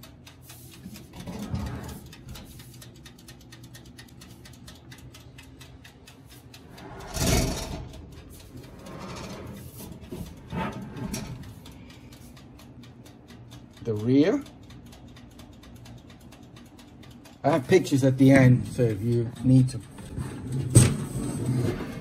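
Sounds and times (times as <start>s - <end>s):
hand rubbing on sheet metal: 0.5s - 2.8s, 6.3s - 11.6s.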